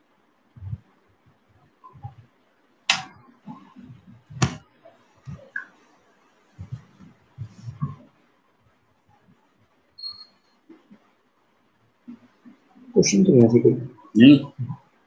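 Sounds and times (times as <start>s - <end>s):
handling thumps and bumps: 2.9s - 4.6s.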